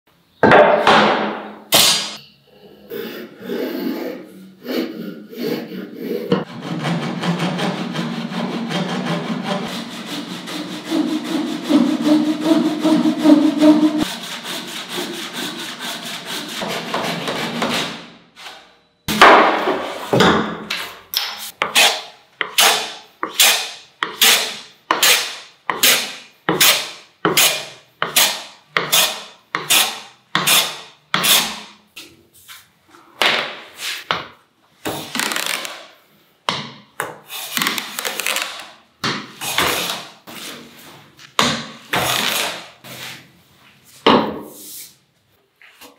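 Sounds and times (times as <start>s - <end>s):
hand plane shaving wood: 4.6s - 17.8s
hand saw cutting wood: 4.6s - 18.0s, 21.2s - 31.8s, 39.4s - 40.7s, 41.9s - 43.2s.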